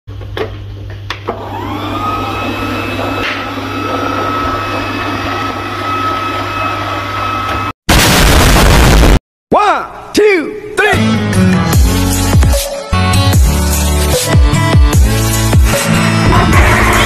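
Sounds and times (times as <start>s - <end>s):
robot vacuum motor whine: 1.4s - 7.7s.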